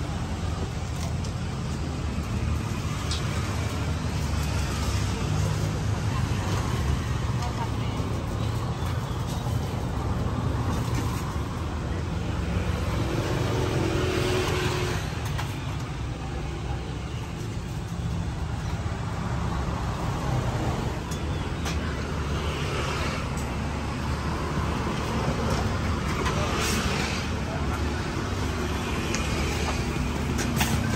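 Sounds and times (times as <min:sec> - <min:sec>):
road traffic passing: 0:00.0 - 0:30.9.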